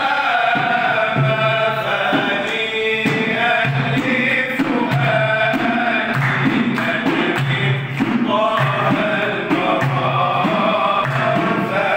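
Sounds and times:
faint regular beat: 0.0s - 11.9s
men chanting in unison: 0.0s - 11.9s.

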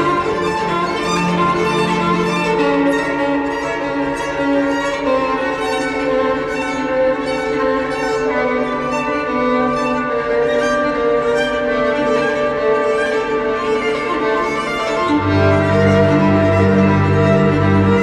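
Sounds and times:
bowed string music: 0.0s - 18.0s.

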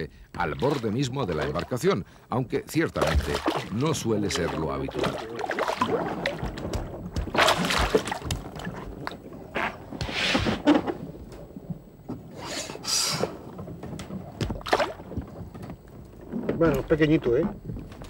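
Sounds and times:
fish splashing and thrashing: 2.9s - 12.3s, 13.1s - 16.6s.

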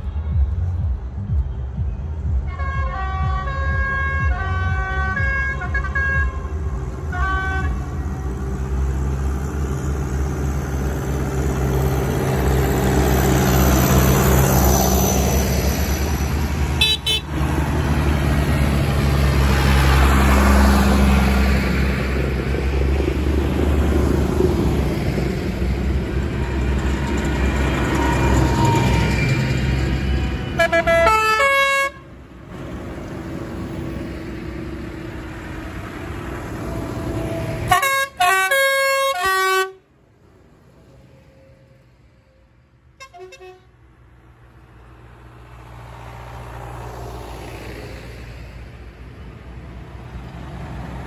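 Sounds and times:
diesel tractors driving past: 0.0s - 51.0s
vehicle horn: 2.4s - 8.2s, 16.8s - 17.4s, 30.4s - 32.2s, 37.7s - 39.9s, 43.0s - 43.8s.

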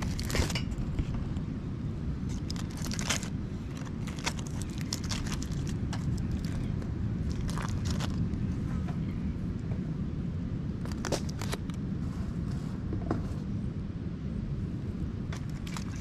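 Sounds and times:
aluminium foil crinkling: 0.0s - 0.8s, 2.3s - 8.4s
steady low rumble: 0.0s - 16.0s.

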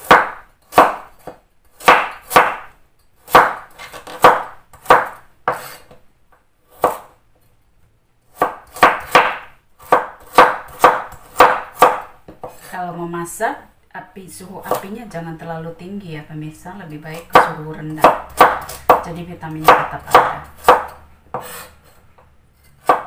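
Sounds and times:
knife chopping carrot on board: 0.0s - 6.0s, 6.7s - 7.2s, 8.3s - 12.7s, 17.2s - 23.0s.

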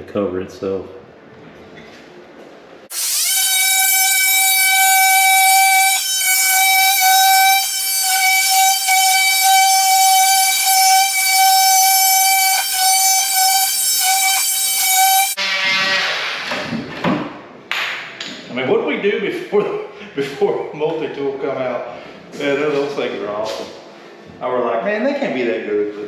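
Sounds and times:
multi-tool cutting wood: 2.9s - 16.8s.

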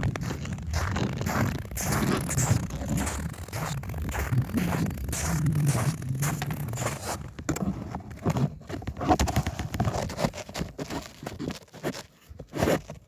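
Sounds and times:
snow crunching and scraping: 0.0s - 7.8s.

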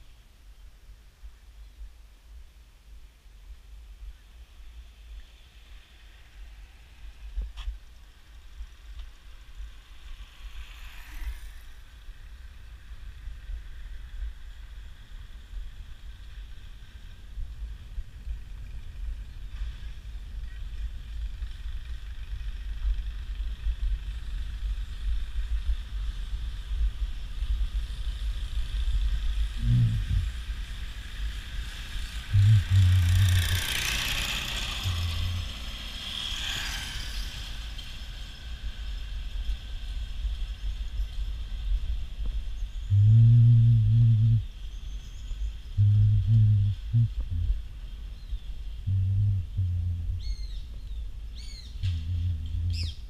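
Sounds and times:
wind and road noise: 0.0s - 53.0s
motor vehicle passing close: 9.8s - 12.2s, 29.3s - 40.2s, 51.4s - 53.0s.

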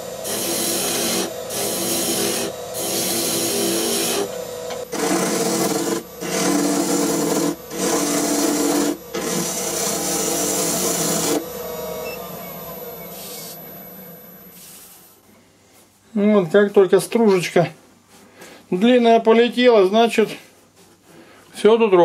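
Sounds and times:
lathe gouge cutting wood: 0.0s - 14.9s
wood lathe humming: 0.0s - 15.2s.

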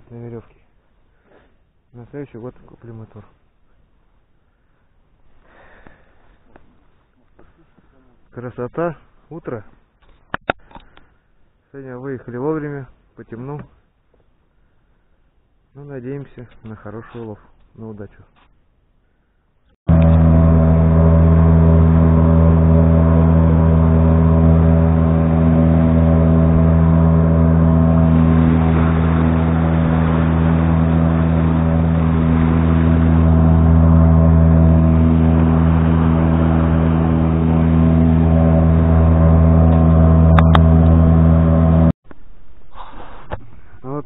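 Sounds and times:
water rushing past hull: 19.9s - 41.9s
outboard motor droning: 19.9s - 42.0s.

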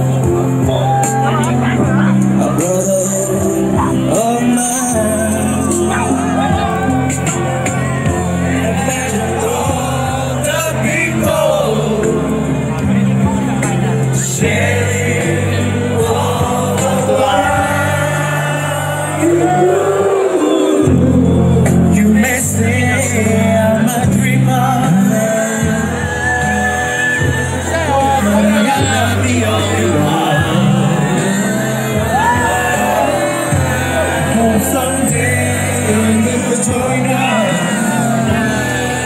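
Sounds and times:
crowd voices: 0.0s - 39.0s
person singing: 0.0s - 39.0s
sustained bass notes: 0.0s - 39.0s
people shouting: 0.6s - 2.0s, 31.9s - 35.1s.

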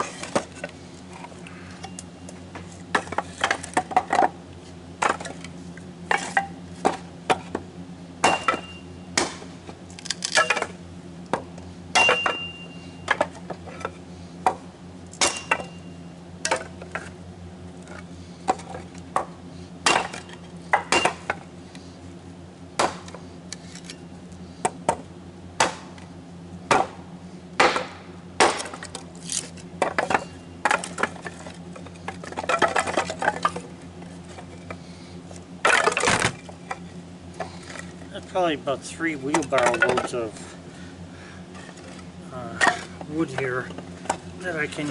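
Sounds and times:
low hum: 0.0s - 44.9s
wood chopping: 6.1s - 7.6s, 8.2s - 13.4s, 14.4s - 15.8s, 18.5s - 21.4s, 22.8s - 23.2s, 24.6s - 25.0s, 25.6s - 26.1s, 26.7s - 27.0s, 27.6s - 31.5s, 35.6s - 36.6s.

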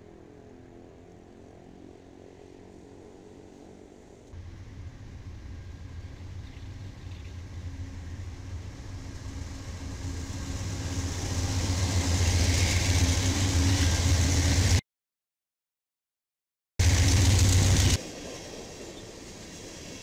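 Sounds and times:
diesel locomotive engine drone: 0.0s - 14.8s, 16.8s - 20.0s
wheels hissing on rail: 2.7s - 14.8s, 16.8s - 20.0s.

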